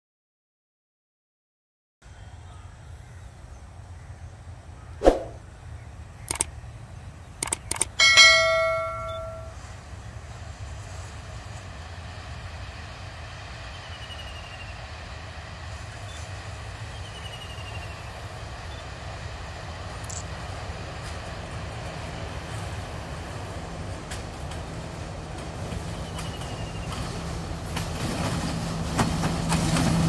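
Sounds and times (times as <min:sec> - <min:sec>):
sharp metallic clicks: 0:06.2 - 0:06.6, 0:07.4 - 0:09.5
ringing clang of struck metal: 0:08.0 - 0:09.6.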